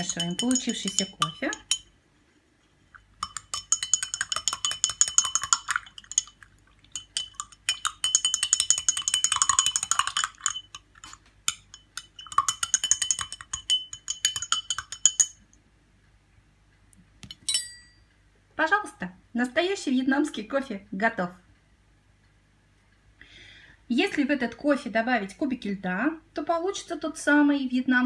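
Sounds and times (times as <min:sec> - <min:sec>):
teaspoon clinking against glass: 0:00.0 - 0:01.9, 0:03.2 - 0:15.5.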